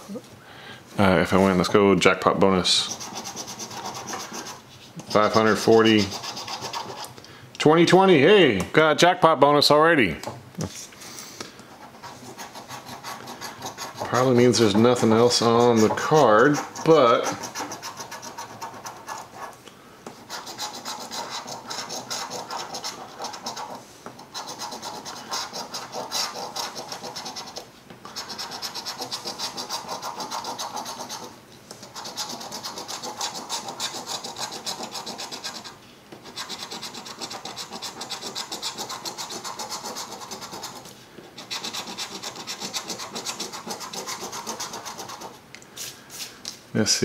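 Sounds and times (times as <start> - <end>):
coin scratching lottery ticket: 2.8 - 7.1, 11.8 - 19.6, 20.2 - 45.4.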